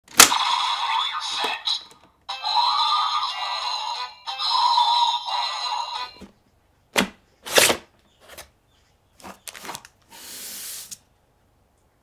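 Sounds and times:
plastic packaging rustling scrapes: 9.2 - 11.0.

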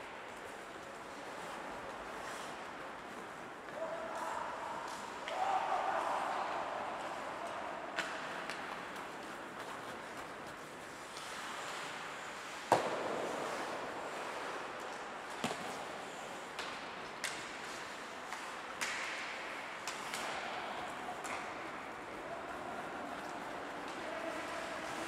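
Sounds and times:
hockey sticks cracking on puck: 7.0 - 25.0.

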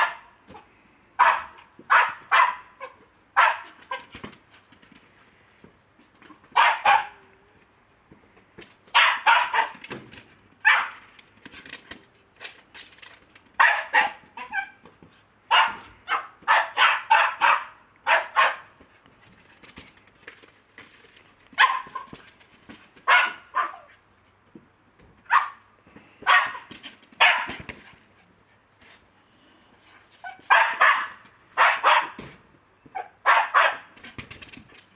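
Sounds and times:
dog barking: 0.0 - 0.3, 1.2 - 3.8, 6.6 - 7.2, 8.9 - 9.8, 10.6 - 11.0, 13.6 - 14.8, 15.5 - 18.7, 21.6 - 22.1, 23.1 - 23.9, 25.3 - 25.6, 26.2 - 27.7, 30.3 - 32.2, 33.0 - 33.9.

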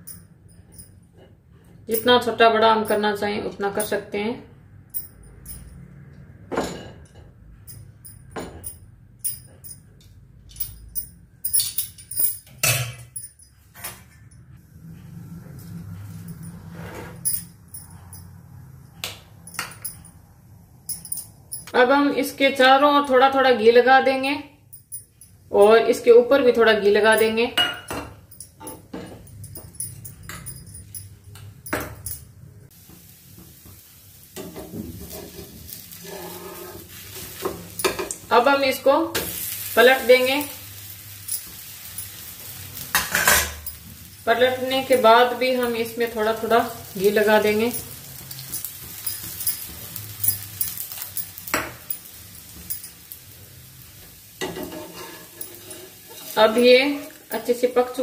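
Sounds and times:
bangles jingling: 0.0 - 1.0, 4.9 - 6.0, 7.6 - 14.5, 16.1 - 18.6, 19.4 - 21.8, 24.7 - 25.5, 27.0 - 32.5, 41.1 - 42.8, 47.0 - 53.2
utensils clinking against pan: 6.5 - 14.6, 19.4 - 20.2, 24.7 - 33.8, 34.4 - 58.0
ladle scraping on griddle: 15.5 - 17.2, 34.4 - 38.1, 54.4 - 57.2
batter frying hiss: 32.7 - 58.0.

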